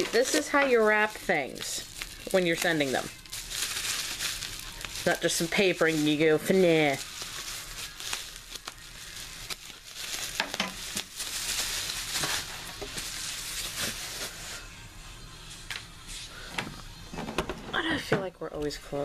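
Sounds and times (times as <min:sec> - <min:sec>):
bubble wrap crinkling: 0:00.0 - 0:14.6.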